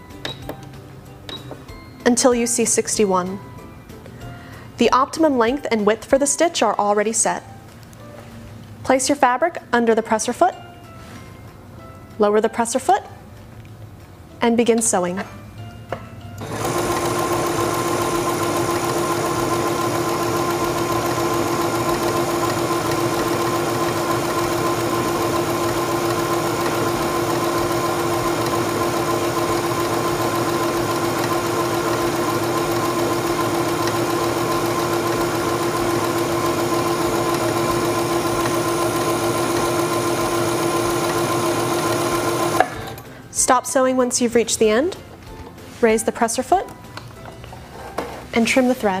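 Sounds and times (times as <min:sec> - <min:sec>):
sewing machine running: 0:16.4 - 0:43.0.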